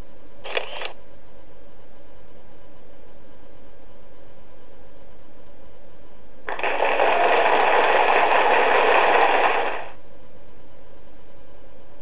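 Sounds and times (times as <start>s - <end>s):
rough hissing noise burst: 6.5s - 10.0s.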